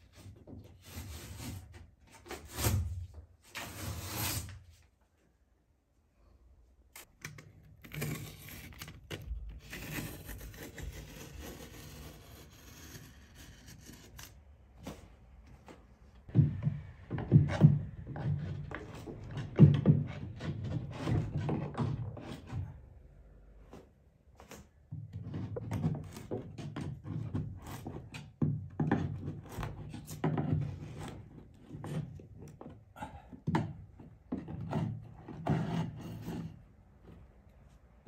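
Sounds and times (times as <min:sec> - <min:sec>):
box cutter scraping and cutting: 0:00.1 - 0:04.6, 0:07.0 - 0:15.0, 0:34.4 - 0:36.6.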